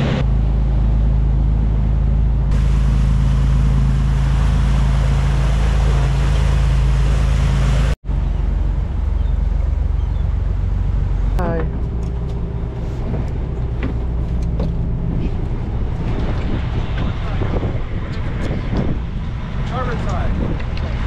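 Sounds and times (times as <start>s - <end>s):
boat engine droning: 0.0s - 21.0s
wind: 0.0s - 21.0s
rushing water: 2.5s - 9.1s.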